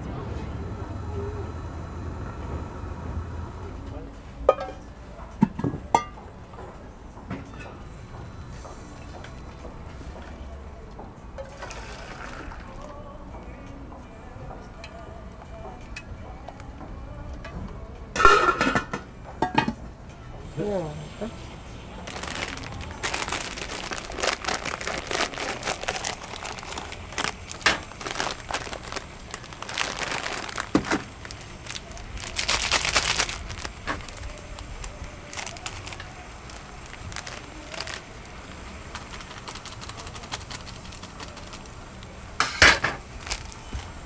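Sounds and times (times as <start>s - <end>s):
plastic packets crinkling: 22.0s - 44.0s.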